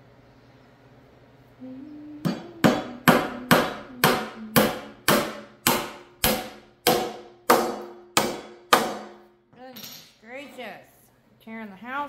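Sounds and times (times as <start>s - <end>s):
hammer driving nail into wood: 2.3s - 9.2s.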